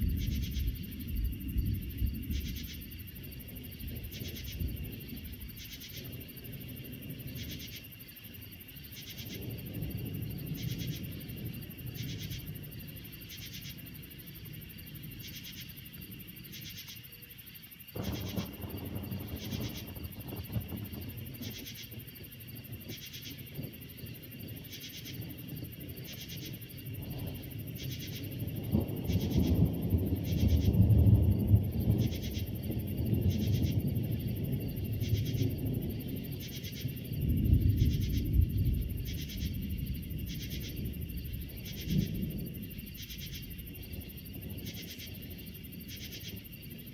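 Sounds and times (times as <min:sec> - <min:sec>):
high-pitched insect chorus: 0:00.0 - 0:46.9
low thunder rumbling: 0:00.0 - 0:46.9
pulsing insect chirp: 0:00.0 - 0:46.9.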